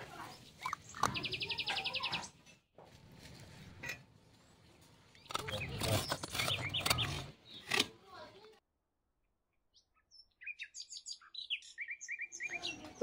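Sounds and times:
bird chirps: 0:00.4 - 0:02.4, 0:09.6 - 0:13.0.

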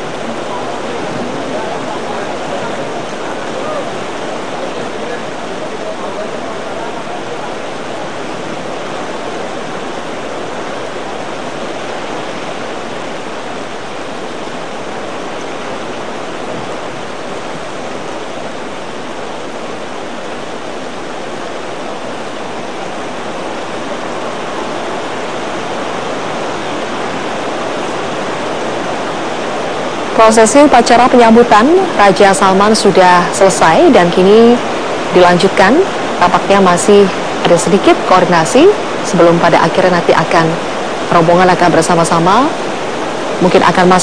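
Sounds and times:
heavy rain pouring: 0:00.0 - 0:44.0.

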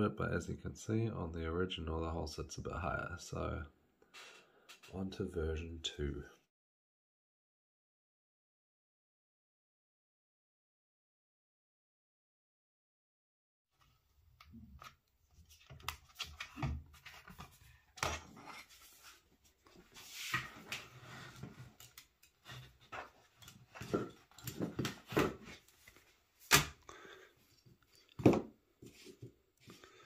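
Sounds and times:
plastic sheet rustling and scraping: 0:18.3 - 0:21.8.

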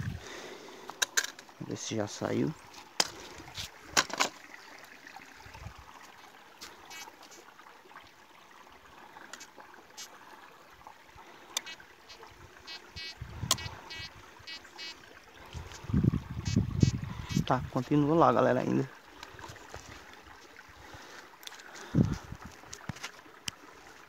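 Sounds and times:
metal detector beeps: 0:12.7 - 0:15.0
sharp clicks: 0:13.5 - 0:13.7.

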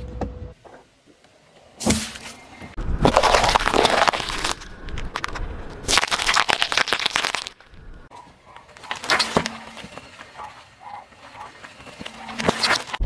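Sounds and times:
tyre crushing objects on asphalt: 0:02.8 - 0:07.6.

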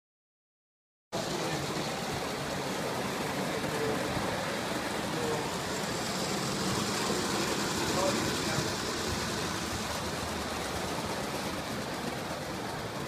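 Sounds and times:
toy trains running on metal track: 0:01.2 - 0:13.0.

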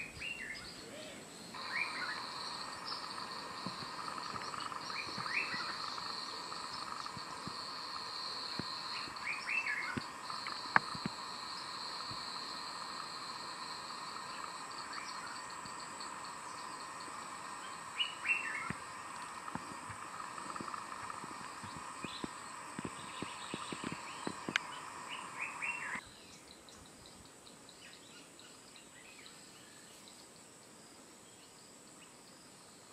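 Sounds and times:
short bird calls: 0:00.0 - 0:03.2
insect drone: 0:00.0 - 0:32.9.

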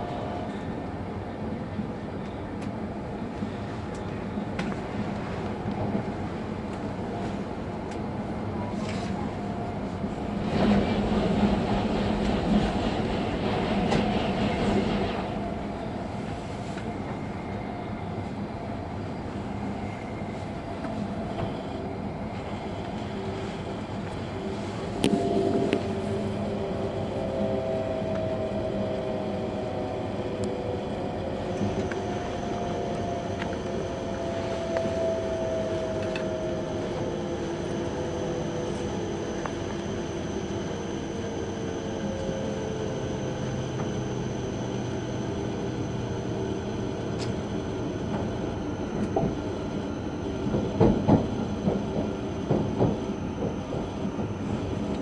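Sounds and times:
train running noise inside car: 0:00.0 - 0:55.0
train whine falling in pitch: 0:24.4 - 0:54.9.

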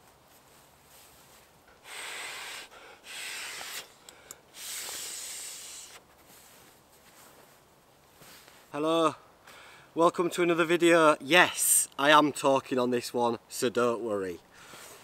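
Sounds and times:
man blowing into an inflatable: 0:01.8 - 0:06.0.

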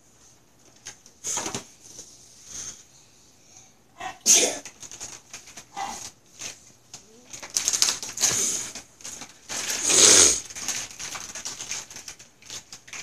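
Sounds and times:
packaging rustling and tearing: 0:04.6 - 0:13.0.

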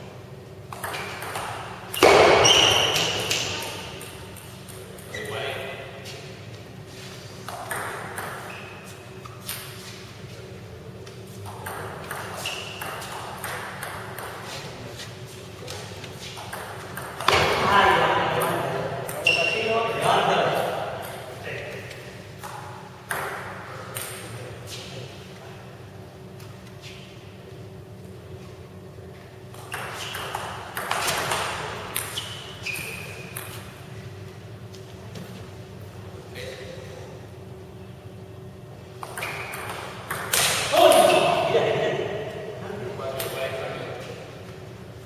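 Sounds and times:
table tennis ball strikes: 0:00.7 - 0:04.8, 0:07.5 - 0:08.5, 0:11.5 - 0:14.4, 0:16.4 - 0:17.8, 0:22.4 - 0:24.3, 0:29.6 - 0:32.1, 0:39.0 - 0:41.2
short high squeak: 0:02.0 - 0:03.1, 0:32.1 - 0:33.4
table tennis clatter: 0:11.5 - 0:14.4.

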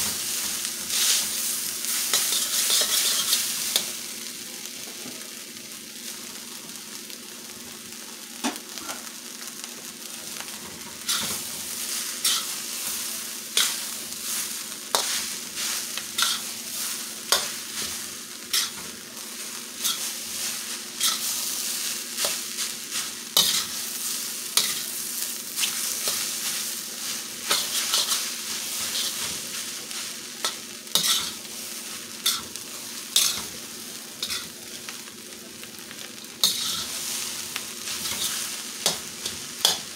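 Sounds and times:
food sizzling in a wok: 0:00.0 - 0:39.9
metal spatula scraping a wok: 0:00.9 - 0:03.9, 0:11.0 - 0:13.0, 0:13.6 - 0:18.9, 0:19.8 - 0:22.4, 0:23.0 - 0:24.9, 0:25.6 - 0:29.7, 0:30.4 - 0:31.4, 0:32.2 - 0:32.5, 0:33.2 - 0:33.5, 0:34.2 - 0:34.5, 0:36.4 - 0:37.2, 0:37.9 - 0:39.8.

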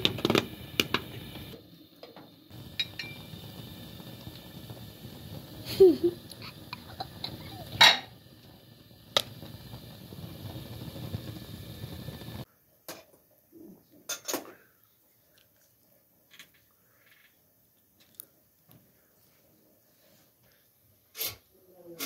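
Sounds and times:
gas burner hissing: 0:00.0 - 0:12.5
metal pots clinking and knocking: 0:02.7 - 0:03.4, 0:06.7 - 0:08.2.

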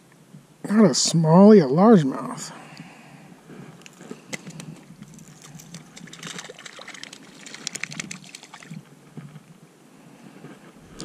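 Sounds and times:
water trickling at shore: 0:04.4 - 0:08.9
fishing tackle clicking: 0:05.4 - 0:08.7.

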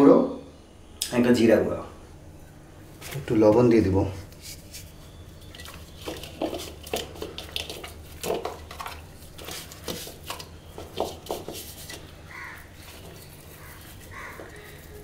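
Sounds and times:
low steady hum: 0:00.0 - 0:15.0
hands squelching fish in bowl: 0:04.4 - 0:15.0.

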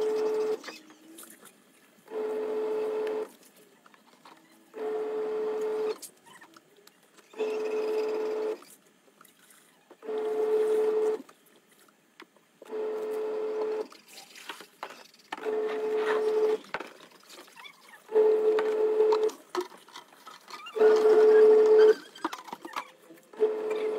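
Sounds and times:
washing machine motor humming: 0:00.0 - 0:00.7, 0:02.1 - 0:03.3, 0:04.7 - 0:06.0, 0:07.3 - 0:08.7, 0:10.0 - 0:11.3, 0:12.6 - 0:14.0, 0:15.4 - 0:16.8, 0:18.0 - 0:19.4, 0:20.6 - 0:22.2, 0:23.2 - 0:23.9.

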